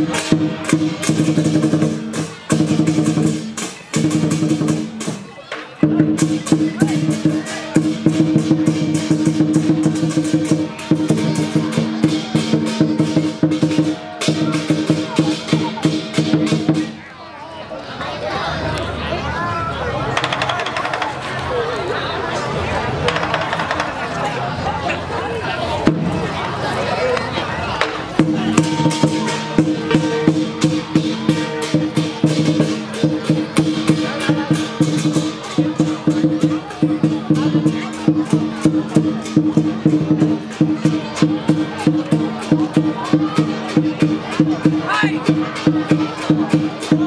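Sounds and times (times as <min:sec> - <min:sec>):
cymbals clashing: 0:00.0 - 0:17.0, 0:27.8 - 0:42.6
drum beaten fast: 0:00.0 - 0:17.1, 0:20.1 - 0:21.3, 0:22.9 - 0:24.1, 0:25.8 - 0:26.8, 0:27.6 - 0:47.0
cymbal crashes: 0:28.2 - 0:35.4.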